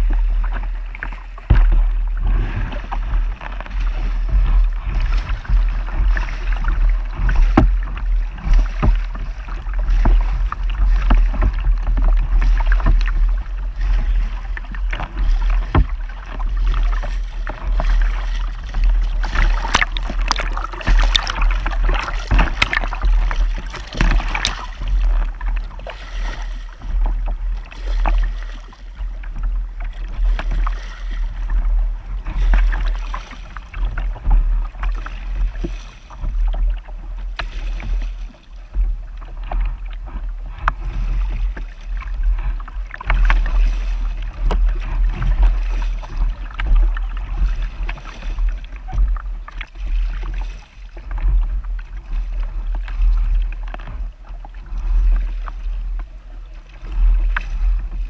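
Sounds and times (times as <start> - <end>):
steady low rumble: 0.0 - 58.0
water rushing along hull: 0.0 - 58.0.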